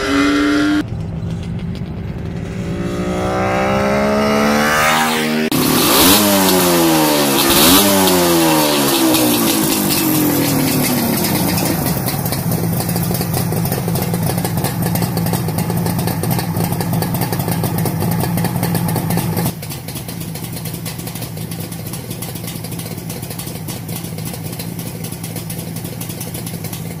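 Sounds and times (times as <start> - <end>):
two-stroke engine idling: 5.5 - 27.0.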